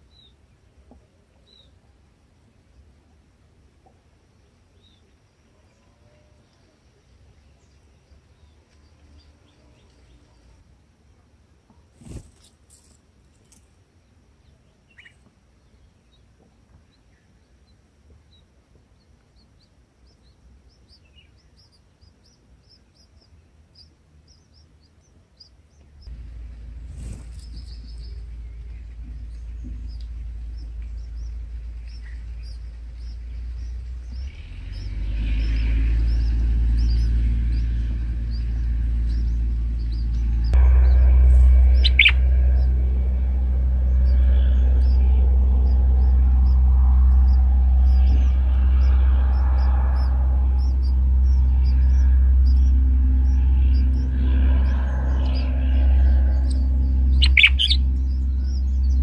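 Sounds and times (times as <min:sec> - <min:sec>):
bulbuls chirping: 0:14.0 - 0:59.0
low rumble: 0:25.7 - 0:59.0.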